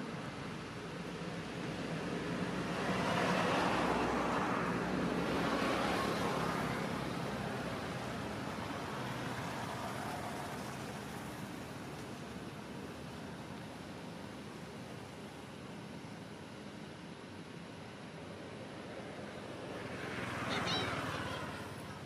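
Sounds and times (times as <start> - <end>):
vehicle passing by: 2.3 - 11.5, 19.4 - 22.0.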